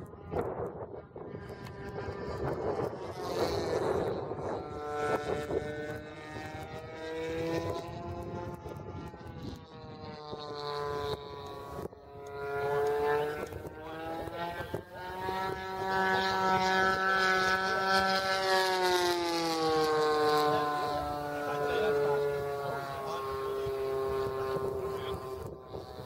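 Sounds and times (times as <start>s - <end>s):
model airplane motor buzzing: 0.0s - 26.0s.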